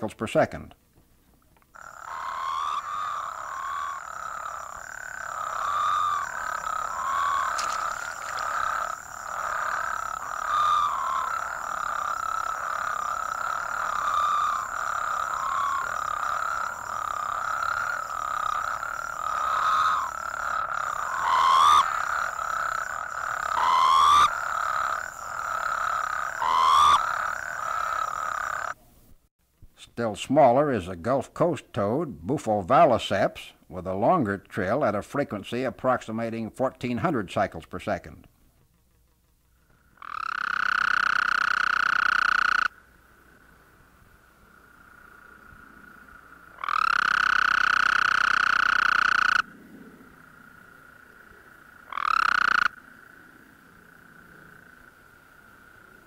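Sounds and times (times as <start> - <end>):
rising toad calls: 1.7 - 28.8, 39.6 - 56.0
toads trilling in chorus: 1.7 - 28.8, 39.6 - 56.0.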